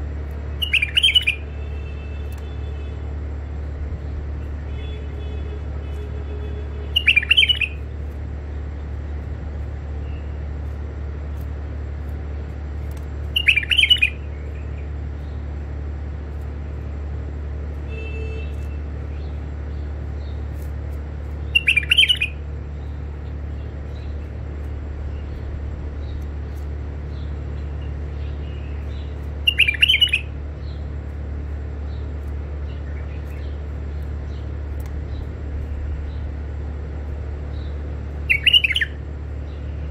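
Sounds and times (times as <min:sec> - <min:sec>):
steady low hum: 0:00.0 - 0:39.9
bird chirping: 0:00.5 - 0:03.0, 0:04.7 - 0:08.1, 0:13.2 - 0:15.5, 0:21.2 - 0:36.4, 0:37.4 - 0:39.9.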